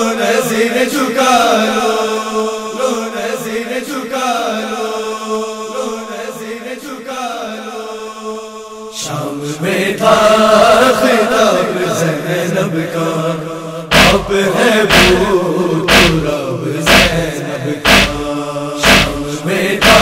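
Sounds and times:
group of voices chanting: 9.0 - 20.0
held low note: 17.9 - 20.0.

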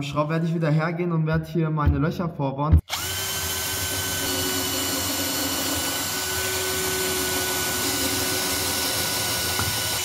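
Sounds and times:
cordless drill boring into wood: 2.9 - 10.0.

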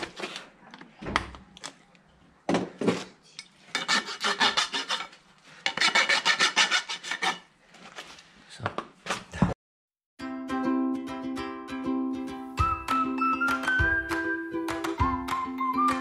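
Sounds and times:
rasp filing hoof: 3.8 - 7.5.

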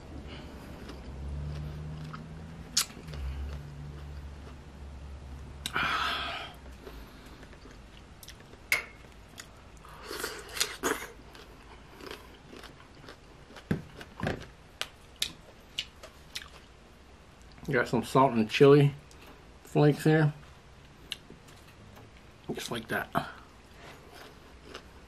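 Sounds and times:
wet chewing: 9.3 - 16.7.

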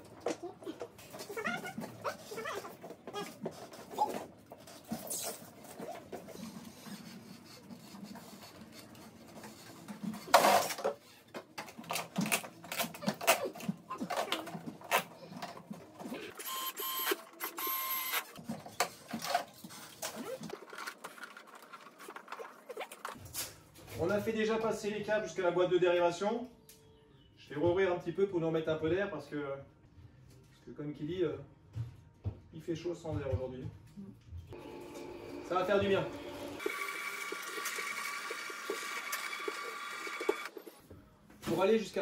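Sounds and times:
cable rustling and scraping: 18.3 - 24.1.

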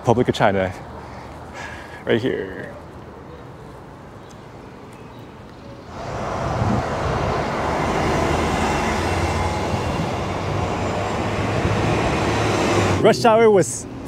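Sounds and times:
vehicle passing close by: 5.9 - 13.5.

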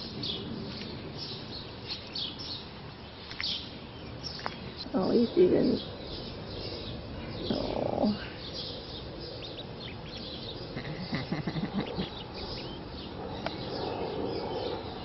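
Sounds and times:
ducklings peeping: 3.2 - 14.6.

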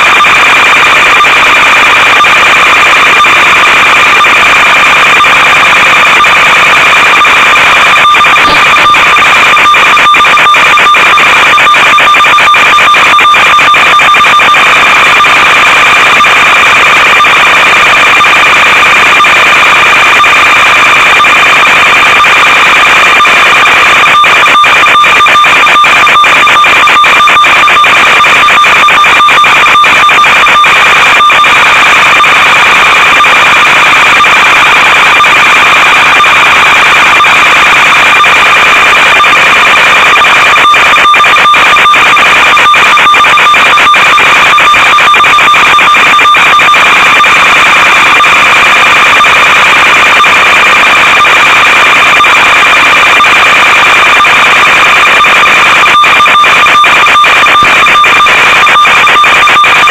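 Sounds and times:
constant high tone: 0.0 - 24.4.

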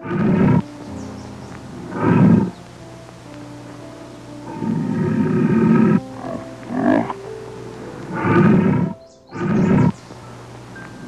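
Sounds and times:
lion roaring: 0.0 - 0.7, 1.7 - 2.6, 4.4 - 10.0
soft background music: 0.0 - 11.0.

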